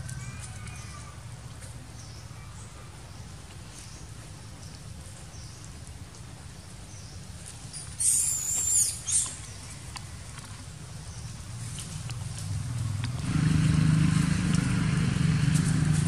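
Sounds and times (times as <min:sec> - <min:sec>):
faint ticks and rustles: 0:03.4 - 0:13.2.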